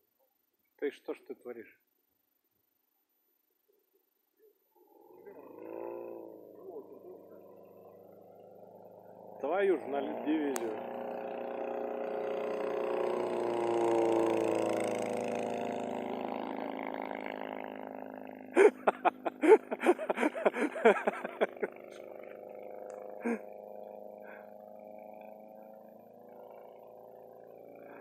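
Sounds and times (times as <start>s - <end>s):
light aircraft engine drone: 4.8s - 28.0s.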